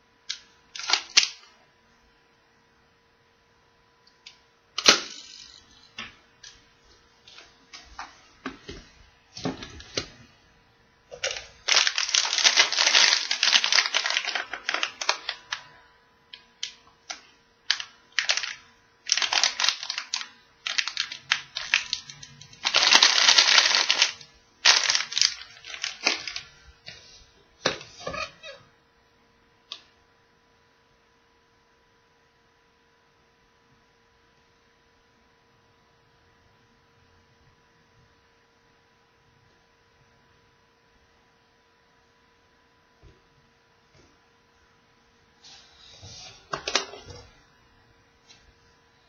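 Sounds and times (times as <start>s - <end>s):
plastic wrapper crinkling: 0.3s - 1.5s, 11.1s - 26.6s.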